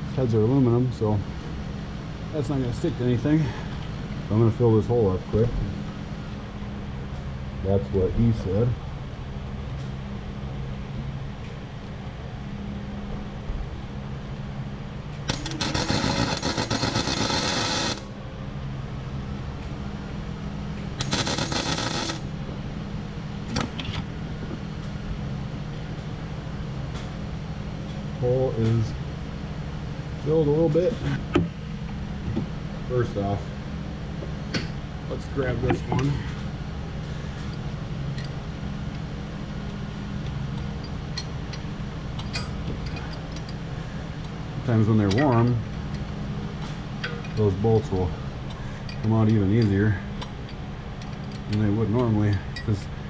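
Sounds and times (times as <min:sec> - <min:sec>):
steady low hum: 0:00.0 - 0:53.0
welder arc crackling: 0:15.3 - 0:18.1, 0:21.0 - 0:22.3.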